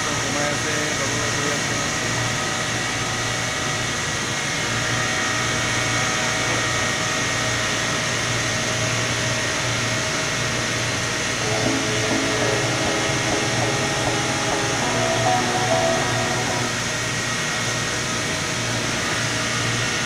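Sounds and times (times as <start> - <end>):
machinery low drone: 11.3 - 17.3
high steady whine: 11.3 - 17.4.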